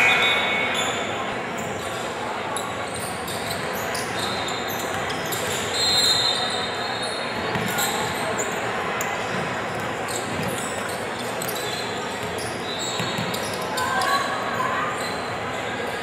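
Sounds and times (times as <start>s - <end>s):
sneakers squeaking on court: 0.0s - 15.5s
basketball bouncing: 7.5s - 7.8s, 13.0s - 13.4s.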